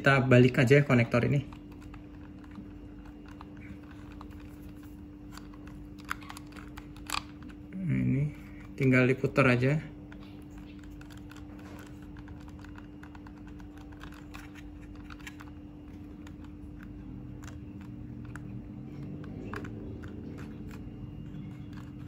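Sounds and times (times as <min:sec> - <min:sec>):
steady low hum: 0:00.0 - 0:22.0
fingers fumbling: 0:10.0 - 0:22.0.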